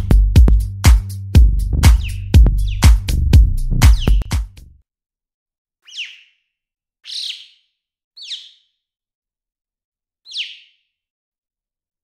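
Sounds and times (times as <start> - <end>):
bird calls falling whistle: 5.8 - 8.8, 10.3 - 10.9.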